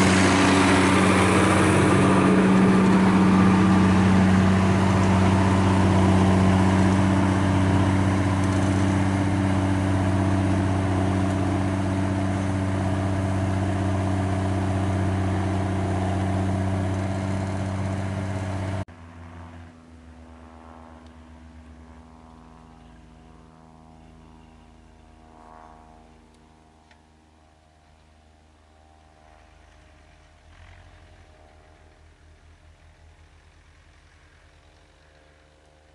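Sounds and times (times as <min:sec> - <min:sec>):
tractor diesel engine under load: 0:00.0 - 0:18.9.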